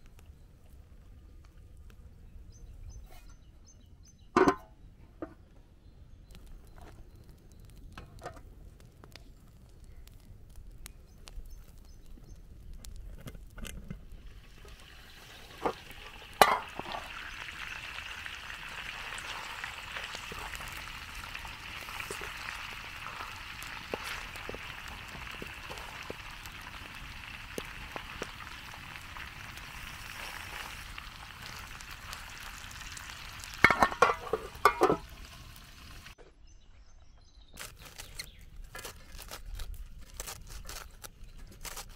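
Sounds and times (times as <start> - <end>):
chicken frying in hot oil: 14.1 - 36.2.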